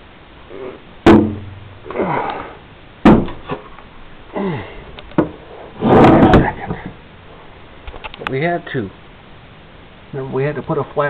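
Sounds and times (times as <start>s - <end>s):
sharp knocks: 1.0s - 1.7s, 3.0s - 3.6s, 5.2s - 7.0s
short breathy vocal sounds: 4.3s - 4.9s.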